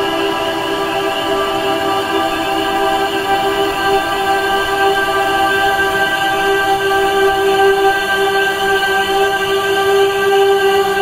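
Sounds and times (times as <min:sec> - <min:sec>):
ambient music sustained chord: 0:00.0 - 0:11.0.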